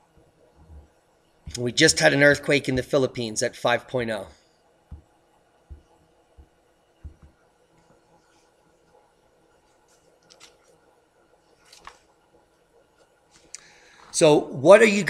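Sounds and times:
computer mouse clicks: 0:10.2 - 0:10.7.

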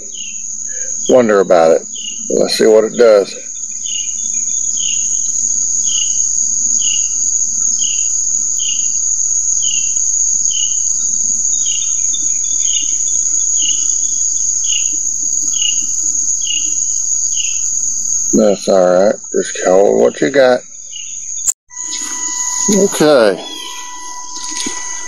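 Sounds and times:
high-pitched insect trill: 0:00.0 - 0:25.0
short falling chirp: 0:21.7 - 0:25.0.

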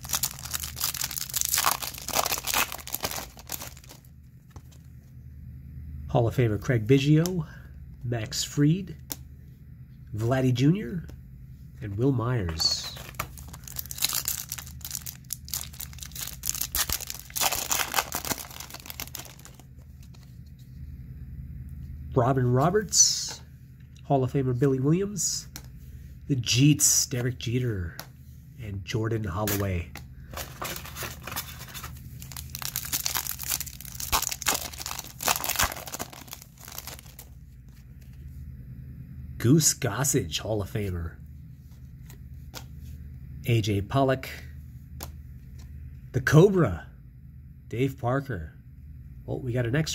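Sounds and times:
foil wrapper tearing and crinkling: 0:00.0 - 0:04.1, 0:13.0 - 0:19.7, 0:30.5 - 0:37.4.

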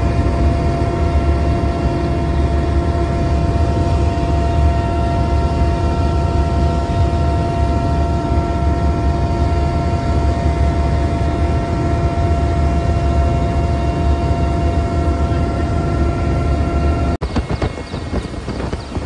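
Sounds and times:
aircraft cabin rumble: 0:00.0 - 0:19.0
steady whining tones: 0:00.0 - 0:19.0.

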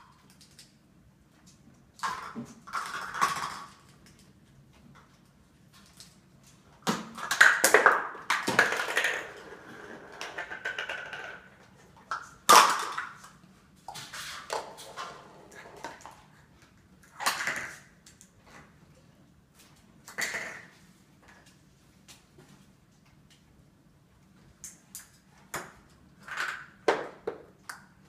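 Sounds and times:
plastic cups clattering: 0:02.0 - 0:04.2, 0:06.9 - 0:13.4, 0:20.1 - 0:20.8.

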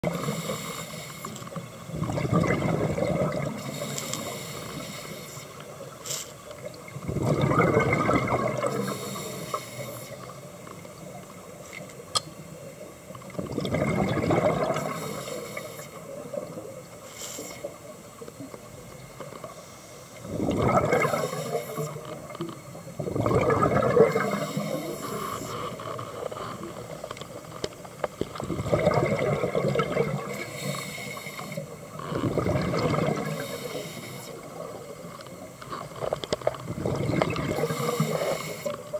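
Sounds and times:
steady underwater wash: 0:00.0 - 0:38.9
regulator bubbling exhalations: 0:01.9 - 0:04.2, 0:07.0 - 0:09.4, 0:13.4 - 0:15.2, 0:20.2 - 0:22.1, 0:23.0 - 0:25.7, 0:28.4 - 0:33.6, 0:36.7 - 0:38.7.

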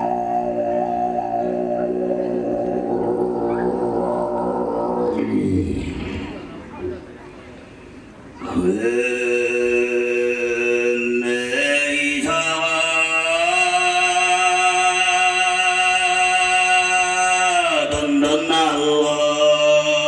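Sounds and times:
man throat singing: 0:00.0 - 0:06.9.

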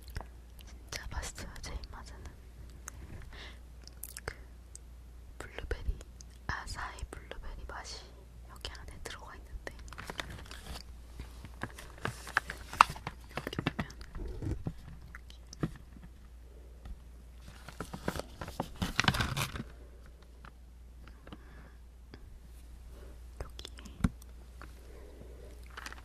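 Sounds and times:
plastic bag rustling: 0:09.8 - 0:15.1, 0:17.4 - 0:19.8, 0:25.6 - 0:26.0.

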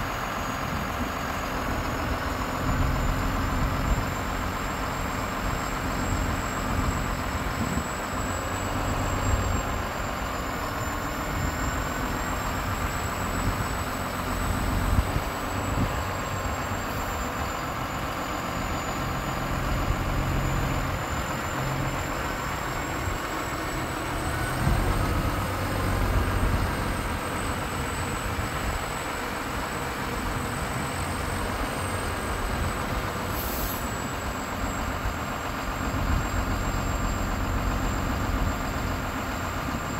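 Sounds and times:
diesel truck engine running: 0:00.0 - 0:39.9
thin high hydraulic whine: 0:00.0 - 0:39.9.

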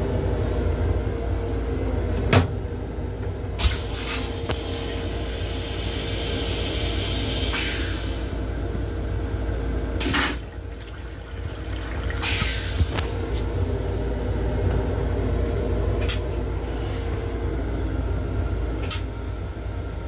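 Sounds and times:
toilet flushing: 0:03.6 - 0:14.2
train rumble: 0:04.5 - 0:20.0.

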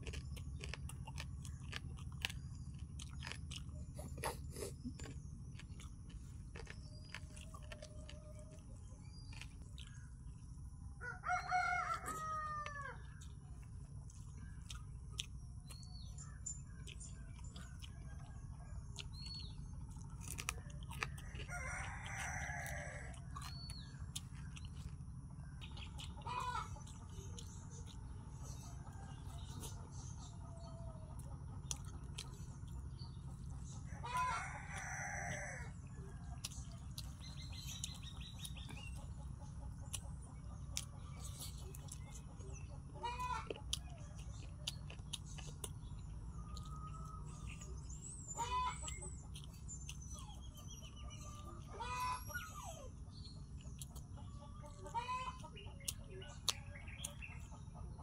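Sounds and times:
chewing clicks: 0:00.0 - 0:10.9, 0:11.8 - 0:58.0
low hum: 0:00.0 - 0:58.0
rooster crowing: 0:11.0 - 0:13.1, 0:20.7 - 0:23.4, 0:33.9 - 0:36.7, 0:46.3 - 0:47.7
fowl calls: 0:26.0 - 0:26.8, 0:48.3 - 0:49.2, 0:51.2 - 0:52.8, 0:54.7 - 0:55.6.

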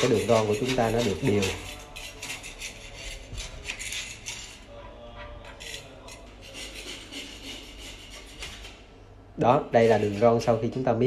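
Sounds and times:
grout tool scraping on tiles: 0:00.0 - 0:08.8.

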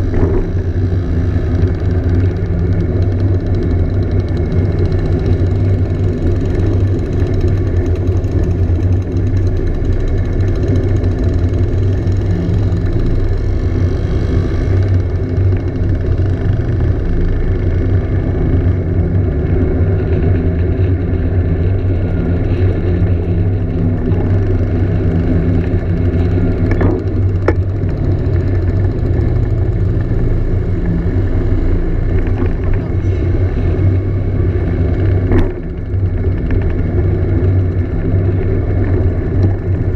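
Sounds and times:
scooter engine running: 0:00.0 - 0:39.9.

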